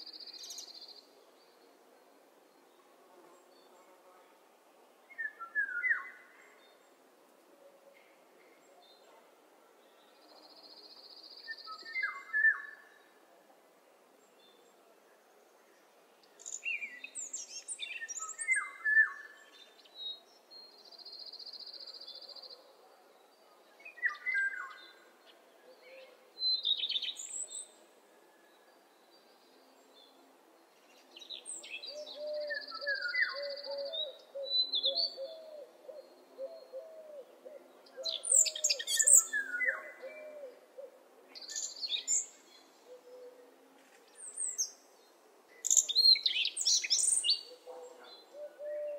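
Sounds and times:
songbirds chirping and trilling: 5.0s - 48.9s.

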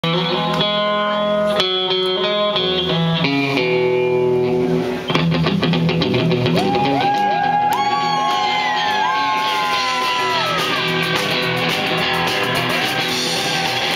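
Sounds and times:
electric guitar ringing chords: 0.0s - 7.0s
drums steady beat: 8.1s - 13.9s.

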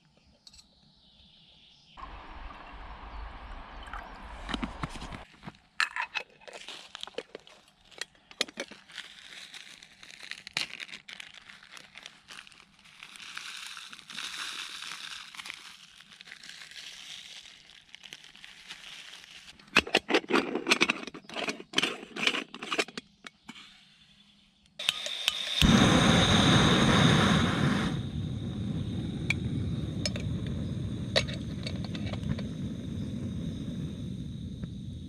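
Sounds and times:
ground coffee poured rustling: 8.6s - 19.6s
metallic clicks and scrapes: 19.6s - 23.7s.

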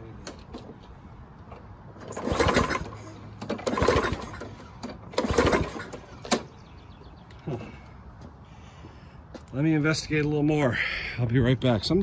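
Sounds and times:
engine pull-start whirring: 2.0s - 6.5s.

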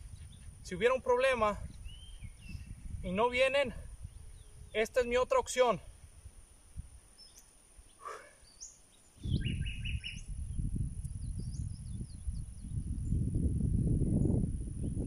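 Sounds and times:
low rumble on microphone: 0.0s - 4.8s, 9.2s - 15.0s
wild birds chirping: 1.7s - 3.1s, 3.9s - 5.1s, 7.0s - 10.6s.

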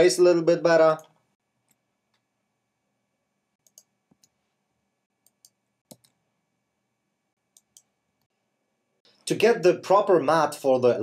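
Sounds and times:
faint computer mouse clicks: 3.6s - 4.4s, 5.2s - 6.2s, 7.5s - 7.9s.

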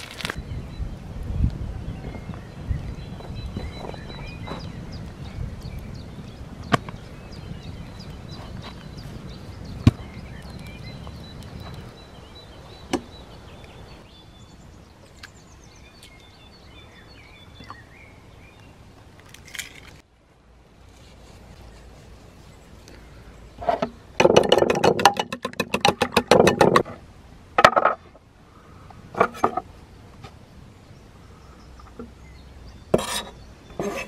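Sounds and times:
small birds chirping: 0.0s - 20.0s, 29.7s - 34.0s
knife and spatula scraping stone: 33.0s - 34.0s.

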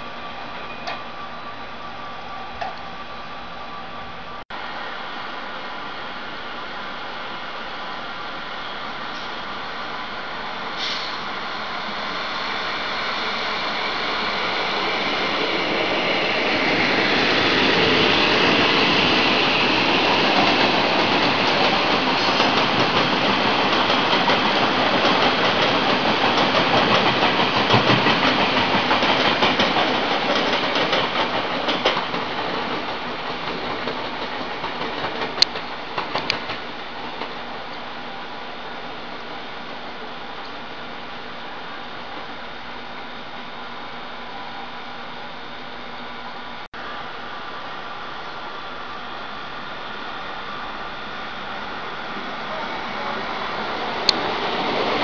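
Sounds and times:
train wheels rumbling on rails: 10.5s - 37.9s, 51.6s - 55.0s.

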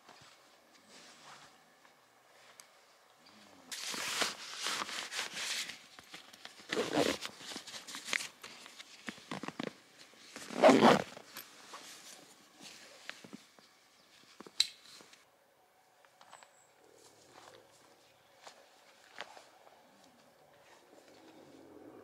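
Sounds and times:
crackles: 3.7s - 15.2s
rustling handling noise: 3.7s - 15.2s.

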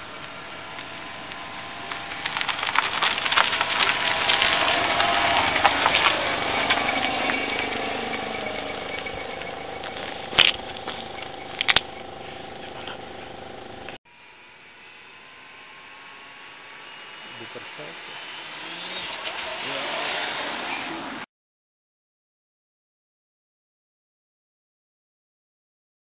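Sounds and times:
tyre noise on asphalt: 0.0s - 14.0s, 17.4s - 21.2s
electric motor whine: 0.0s - 21.0s.

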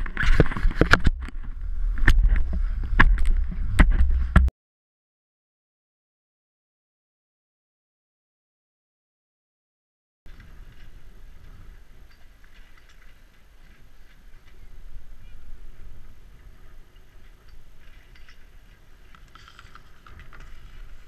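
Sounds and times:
wind rumble on microphone: 0.0s - 4.5s, 10.3s - 21.0s.

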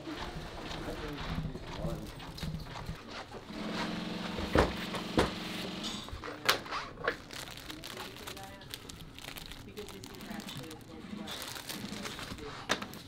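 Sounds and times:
sewing machine hum: 3.4s - 6.2s.

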